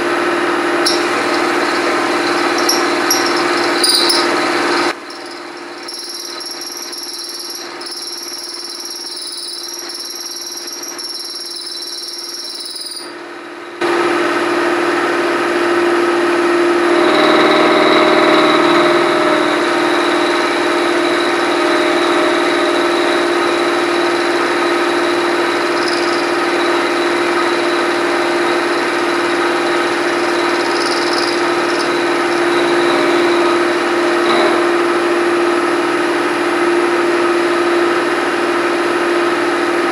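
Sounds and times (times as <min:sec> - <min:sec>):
milling machine cutting metal: 0:00.8 - 0:13.1, 0:16.9 - 0:35.0
high whine: 0:00.8 - 0:13.9, 0:16.2 - 0:35.8.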